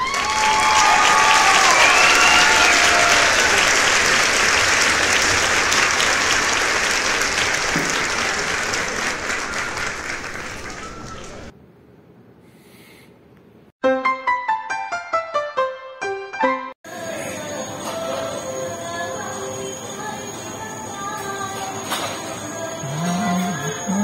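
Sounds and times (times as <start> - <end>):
crowd applauding: 0.0 - 11.5, 22.8 - 24.0
voices cheering: 0.0 - 11.5, 22.8 - 24.0.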